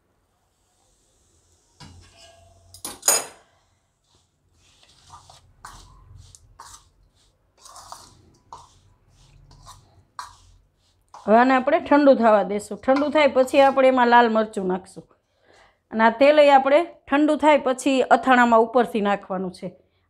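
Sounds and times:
hand scraping pickle in bowl: 0:04.1 - 0:14.5.

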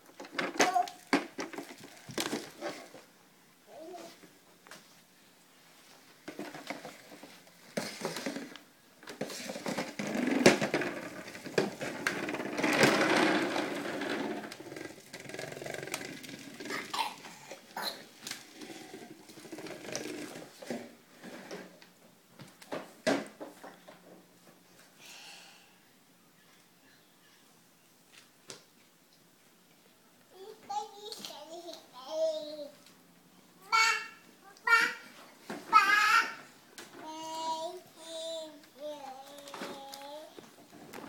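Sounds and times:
plastic wheels rolling on wooden floor: 0:00.0 - 0:03.1, 0:06.2 - 0:24.3, 0:33.7 - 0:41.0.

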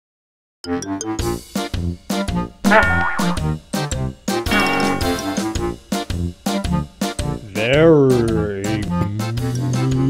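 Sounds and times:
music with punchy chords: 0:02.7 - 0:03.4, 0:04.5 - 0:05.4.

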